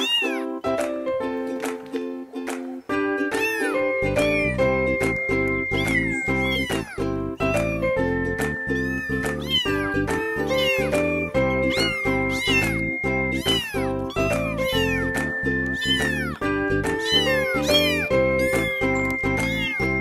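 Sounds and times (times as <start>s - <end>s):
kitten meowing: 0.0s - 0.6s, 3.2s - 20.0s
held chords music: 0.4s - 20.0s.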